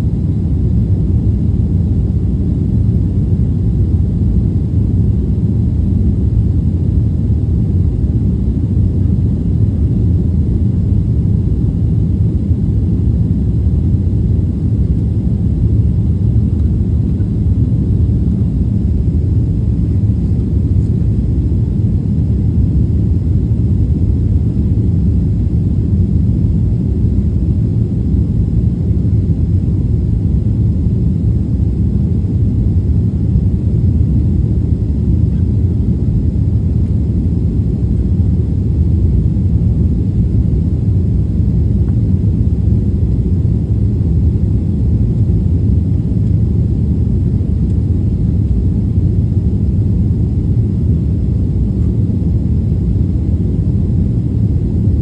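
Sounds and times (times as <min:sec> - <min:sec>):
jet engines rumbling in cabin: 0:00.0 - 0:55.0.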